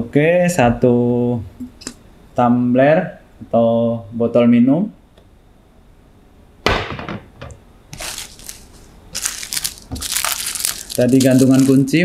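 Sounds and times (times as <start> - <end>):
plastic bag crinkling: 7.9 - 12.0.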